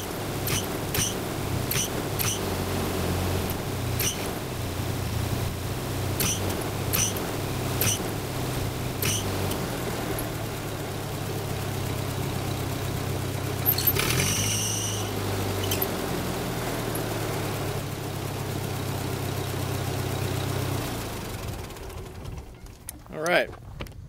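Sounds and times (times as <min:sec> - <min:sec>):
tractor engine running: 0:00.0 - 0:24.0
short high squeak: 0:13.6 - 0:15.9.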